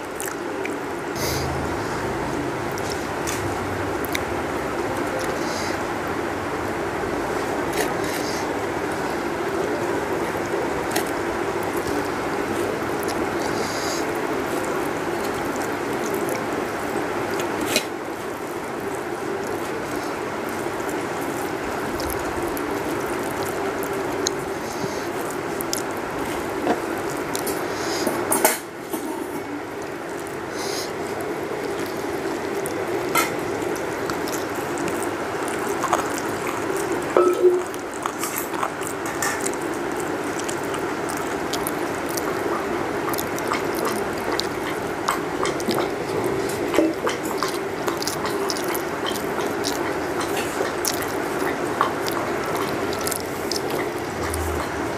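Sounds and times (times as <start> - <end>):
rushing background noise: 0.0 - 28.3, 29.4 - 54.9.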